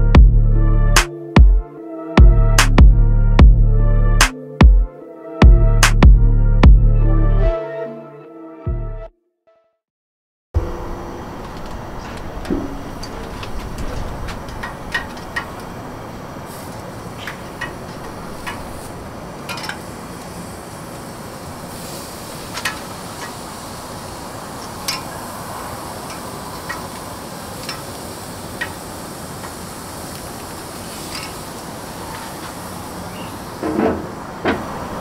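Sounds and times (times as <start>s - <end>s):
grill sizzling: 11.1s - 35.0s
tongs clicking on grill grate: 14.5s - 15.7s, 17.2s - 18.7s, 19.4s - 19.9s, 24.8s - 25.2s, 26.1s - 27.0s, 27.6s - 27.9s, 28.6s - 28.8s, 31.0s - 31.4s.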